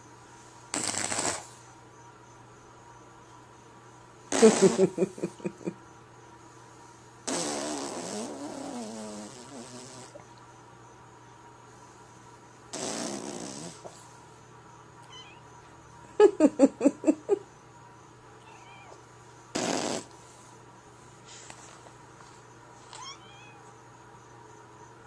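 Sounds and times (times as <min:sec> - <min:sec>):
man blowing raspberries: 0:00.7 - 0:01.5, 0:04.3 - 0:05.0, 0:07.3 - 0:10.2, 0:12.7 - 0:13.9, 0:19.5 - 0:20.2.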